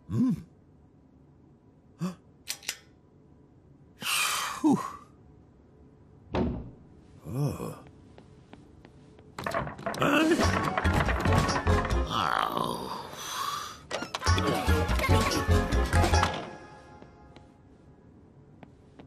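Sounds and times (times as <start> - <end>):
man grunting: 0.1 - 0.5, 7.2 - 7.9, 12.2 - 13.4
man sighing: 0.1 - 0.5, 2.0 - 2.3, 4.0 - 5.1.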